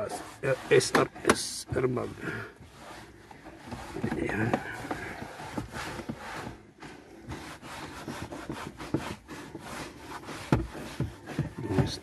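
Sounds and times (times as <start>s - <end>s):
cloth scrubbing plastic panel: 0.0s - 12.0s.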